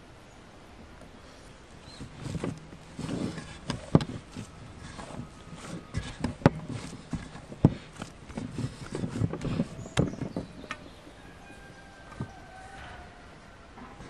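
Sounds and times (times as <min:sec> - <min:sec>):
dough slapping: 0:02.0 - 0:10.4.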